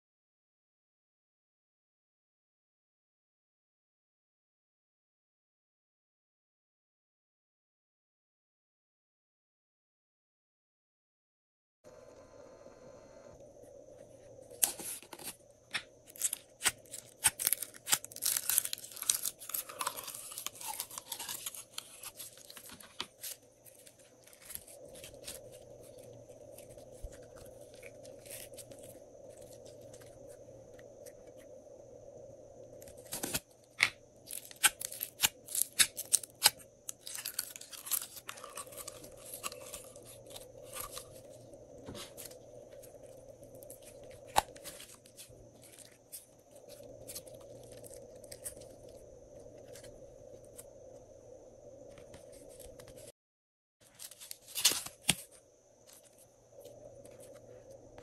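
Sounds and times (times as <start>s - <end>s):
faint background hum: 11.9s - 53.1s, 53.8s - 58.0s.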